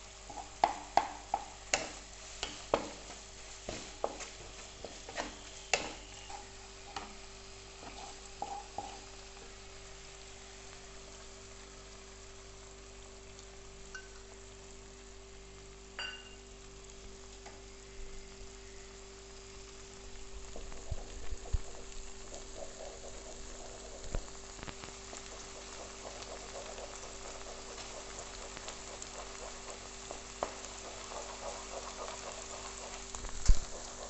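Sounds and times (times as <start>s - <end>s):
food sizzling in oil: 0.0s - 34.0s
spatula scraping and knocking pan: 0.2s - 9.2s, 25.1s - 34.0s.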